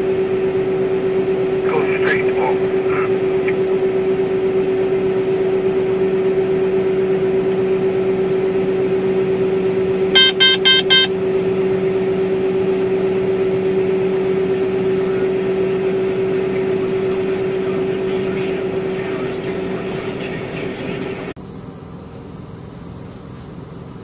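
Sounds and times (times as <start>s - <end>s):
combine harvester droning: 0.0s - 24.0s
quick electronic beeps: 10.2s - 11.1s.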